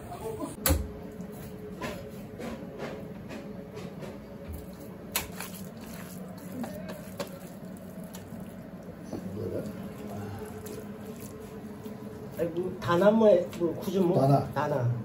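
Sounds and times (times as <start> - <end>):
steady low hum: 0.0 - 15.0
minced meat scooped by hand: 4.7 - 12.4.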